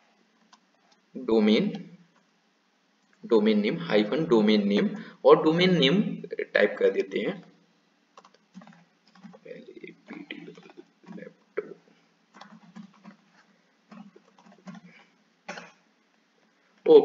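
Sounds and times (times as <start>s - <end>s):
computer keyboard typing: 0.4s - 1.0s, 8.2s - 11.7s, 12.3s - 15.1s.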